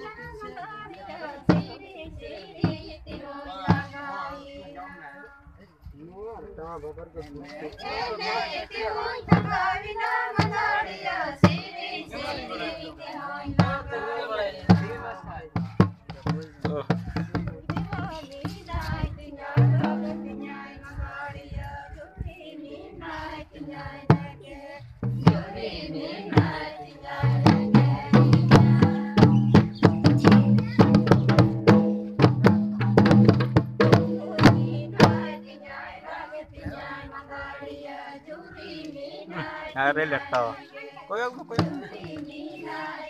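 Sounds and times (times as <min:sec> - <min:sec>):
drum beats: 0:00.0 - 0:04.2, 0:09.2 - 0:12.8, 0:13.4 - 0:21.2, 0:23.7 - 0:35.8, 0:41.4 - 0:43.0
group singing folk song: 0:00.0 - 0:05.3, 0:07.7 - 0:15.5, 0:17.7 - 0:43.0.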